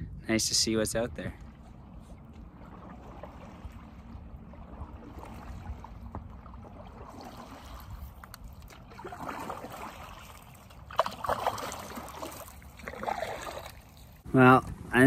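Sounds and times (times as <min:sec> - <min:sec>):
steady low rumble: 0:00.0 - 0:09.0
paddle splashing in water: 0:01.4 - 0:14.2.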